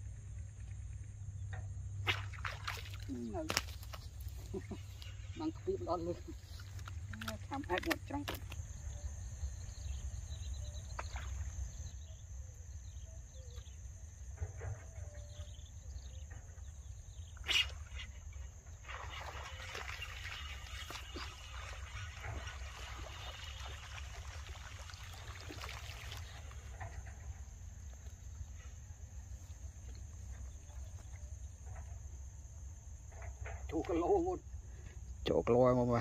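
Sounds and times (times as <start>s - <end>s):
splashing and rustling in water weeds: 2.0s - 9.0s, 10.8s - 12.0s, 16.8s - 31.9s.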